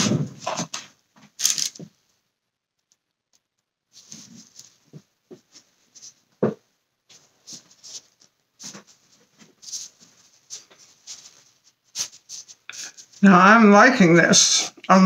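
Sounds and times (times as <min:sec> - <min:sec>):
soft rustles: 0:03.9 - 0:06.4, 0:07.0 - 0:13.2.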